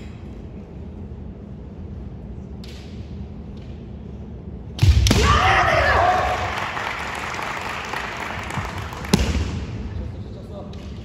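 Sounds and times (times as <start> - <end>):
loud shout: 5.1 - 6.8.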